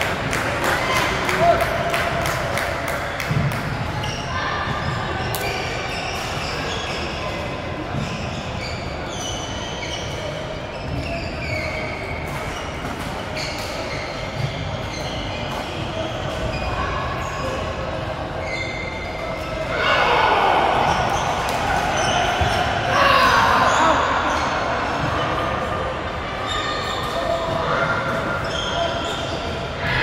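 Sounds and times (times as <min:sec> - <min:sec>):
din of large hall: 0:00.0 - 0:30.0
shoes squeaking on court: 0:03.1 - 0:19.6, 0:26.5 - 0:29.7.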